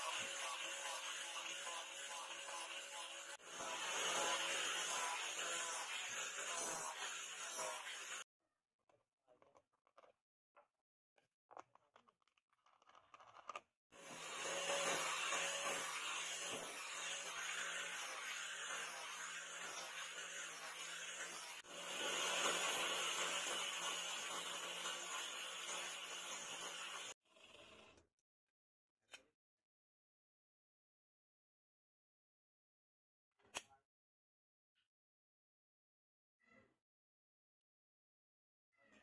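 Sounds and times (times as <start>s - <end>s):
angle grinder sanding wood: 0.0s - 8.2s, 14.0s - 27.2s.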